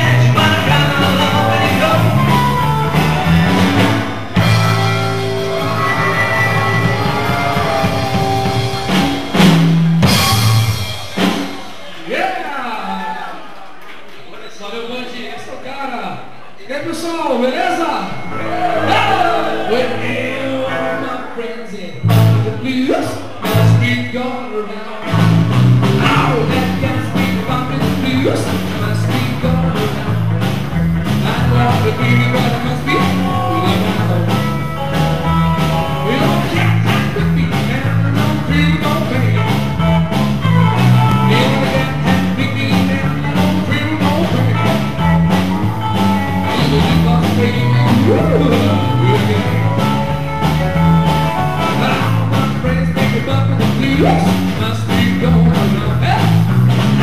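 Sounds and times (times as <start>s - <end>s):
electric bass line: 0.0s - 11.6s, 22.0s - 22.7s, 25.1s - 57.0s
live band playing: 0.0s - 12.1s, 17.7s - 24.2s, 25.0s - 57.0s
drum hits: 2.0s - 11.8s, 25.2s - 57.0s.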